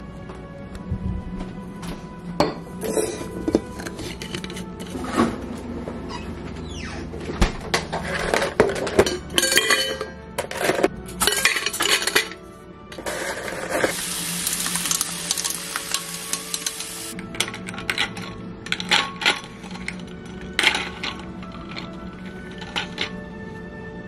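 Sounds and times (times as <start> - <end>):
ice cubes clinking in metal bottle: 8.2 - 12.4, 13.0 - 23.2
tap water running into bottle: 13.9 - 17.2.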